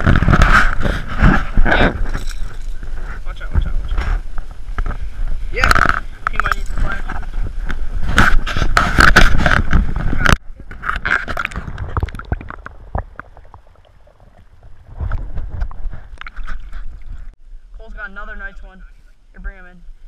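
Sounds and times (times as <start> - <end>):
underwater gurgling and clicks: 5.7 - 17.4.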